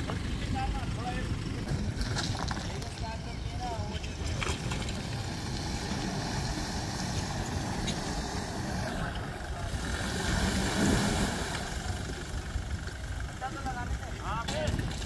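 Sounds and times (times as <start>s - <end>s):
truck engine running: 0.0s - 15.0s
wheel churning water: 4.1s - 12.6s.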